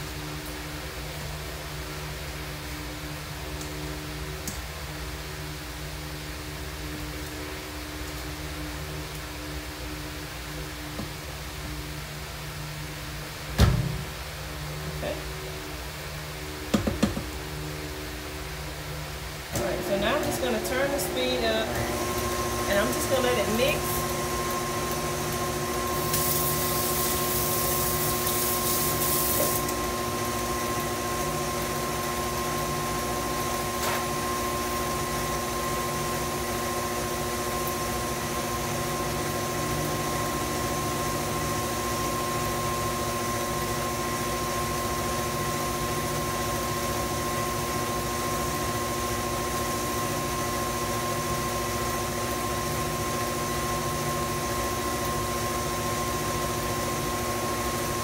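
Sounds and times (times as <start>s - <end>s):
stand mixer motor humming: 19.5s - 58.0s
hiss: 26.0s - 29.6s.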